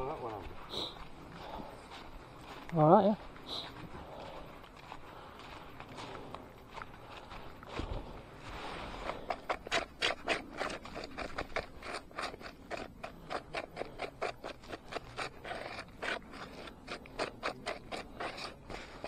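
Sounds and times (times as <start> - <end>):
rapid scraping strokes: 8.5 - 19.0.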